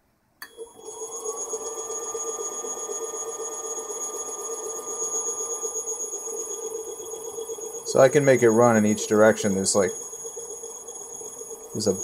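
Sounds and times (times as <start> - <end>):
electric motor whine: 0.5 - 12.0.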